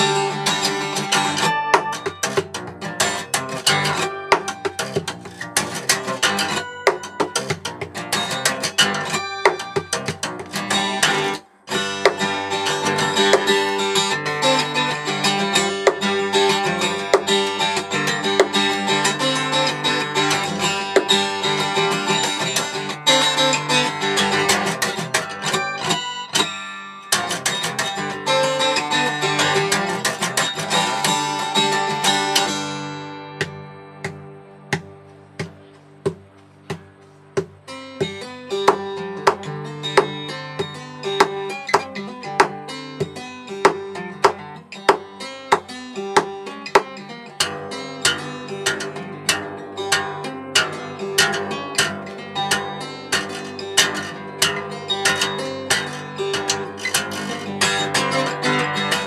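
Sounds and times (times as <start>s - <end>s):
fingerstyle acoustic guitar: 0.0s - 59.0s.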